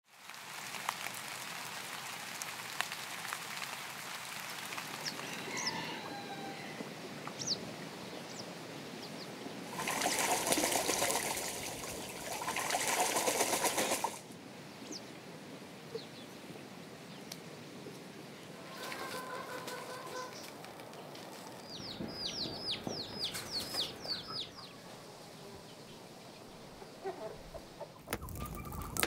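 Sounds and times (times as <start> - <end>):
birds chirping: 4.9 - 12.8, 15.9 - 29.0
water trickling and running: 9.7 - 14.2.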